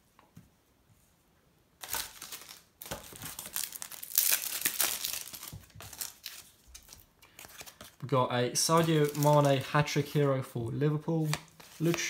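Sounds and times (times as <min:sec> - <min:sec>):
wrapper crinkling and tearing: 0:01.8 - 0:07.9, 0:08.6 - 0:10.0.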